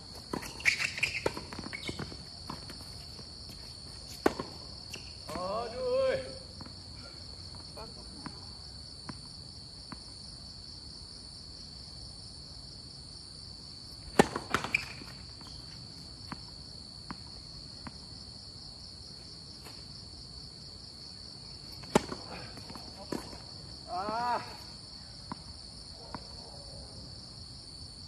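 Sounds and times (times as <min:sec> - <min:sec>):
insects trilling: 0:00.0 - 0:28.0
racket hitting tennis ball: 0:00.1 - 0:02.9, 0:04.0 - 0:05.5, 0:14.0 - 0:16.4, 0:21.7 - 0:24.7
tennis ball bouncing and struck: 0:00.3 - 0:02.8, 0:04.2 - 0:05.4, 0:14.1 - 0:15.7, 0:21.8 - 0:23.4.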